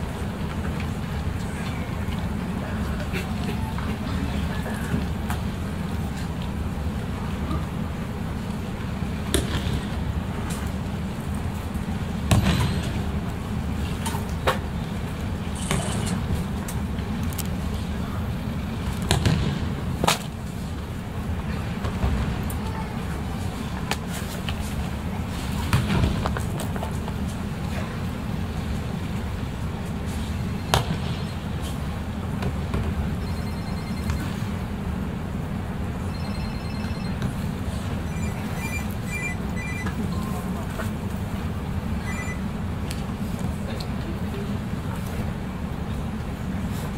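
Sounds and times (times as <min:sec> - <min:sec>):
low rumble of large hall: 0:00.0 - 0:46.9
hall hum: 0:33.2 - 0:43.0.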